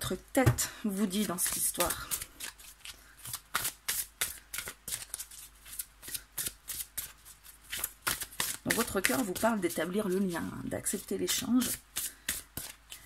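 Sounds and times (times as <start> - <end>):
cards shuffled by hand: 1.3 - 9.5.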